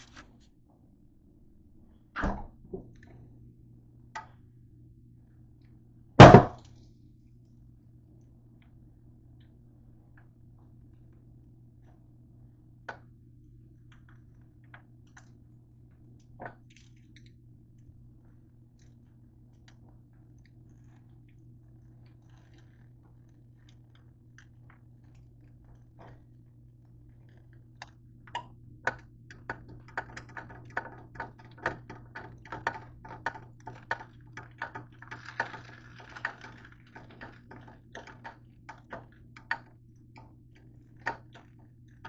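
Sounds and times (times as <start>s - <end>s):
steady low hum: 0.0s - 42.0s
crisp toast crackling: 13.8s - 42.0s.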